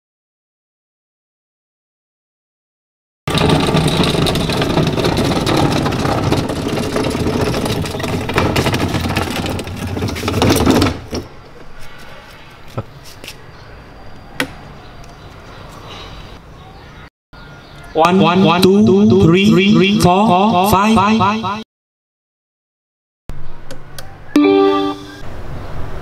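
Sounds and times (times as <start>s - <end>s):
knocks and clicks: 3.3s - 11.3s
caster wheels rolling on tiles: 3.3s - 11.4s.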